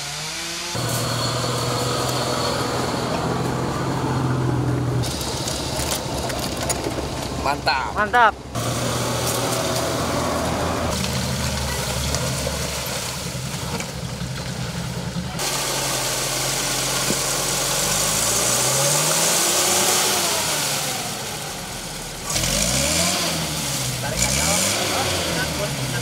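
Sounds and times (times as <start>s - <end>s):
off-road engine revving: 0.0s - 26.0s
loud hiss: 15.4s - 22.6s.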